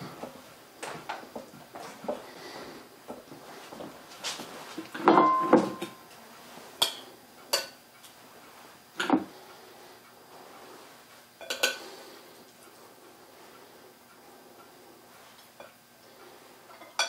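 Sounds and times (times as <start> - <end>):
dishes and utensils clinking: 5.0 - 6.1, 11.4 - 11.9, 16.7 - 17.0
ringing tone: 5.1 - 6.1.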